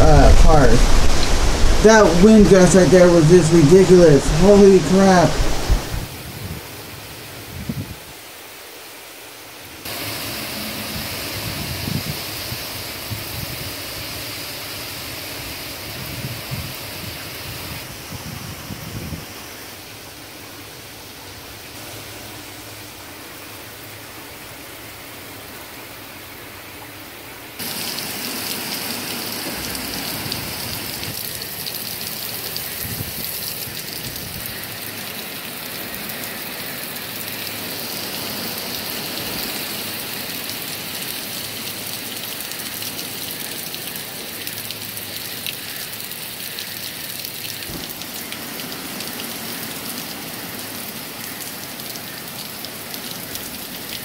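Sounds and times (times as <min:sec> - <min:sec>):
rain and wind through trees: 0:00.0 - 0:54.0.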